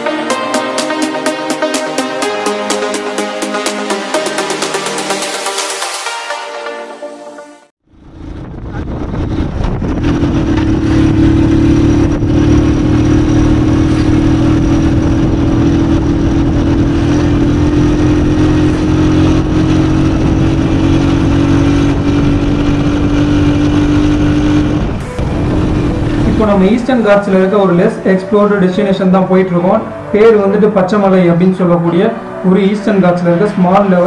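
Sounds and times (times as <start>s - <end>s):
motorcycle engine running: 7.8s - 28.0s
wind rushing past: 7.9s - 28.1s.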